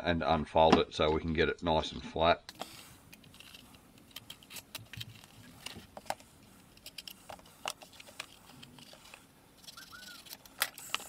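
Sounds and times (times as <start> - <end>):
utility knife cutting tape: 9.6 - 11.0.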